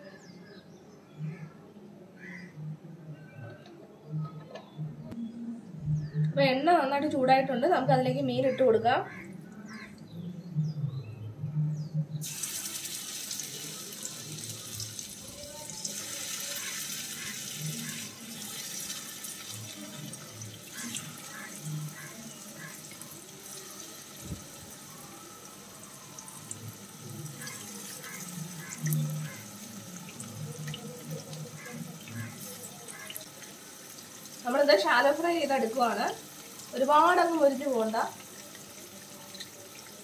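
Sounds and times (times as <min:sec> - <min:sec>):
fish sizzling in oil: 0:12.2 - 0:40.0.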